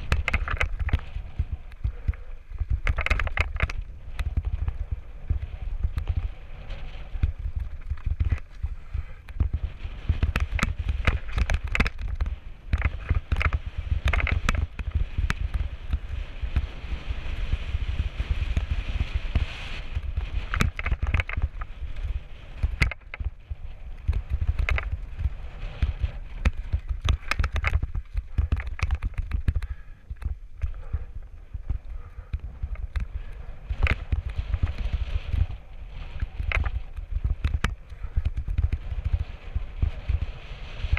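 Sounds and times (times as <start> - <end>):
tyres crunching over stones: 0.0 - 6.2, 7.1 - 16.1, 20.0 - 33.1
bike clicks and clatters: 0.0 - 40.9
wind buffeting microphone: 0.0 - 40.9.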